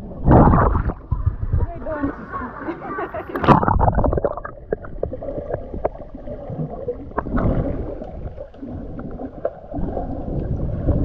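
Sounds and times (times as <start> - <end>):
muffled underwater rumble: 0.0 - 11.0
bubble clicks and pops: 3.4 - 6.0.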